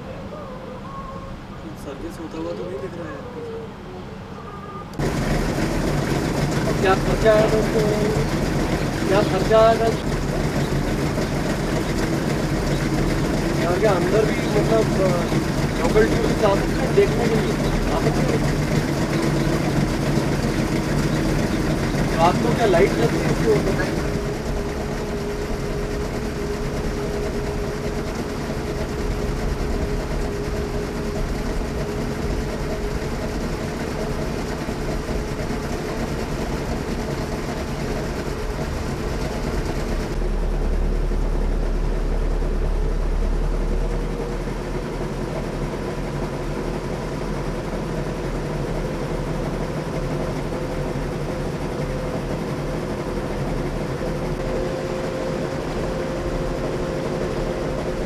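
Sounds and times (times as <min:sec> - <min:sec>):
boat motor drone: 0:00.0 - 0:58.0
heavy low rumble: 0:05.0 - 0:46.2.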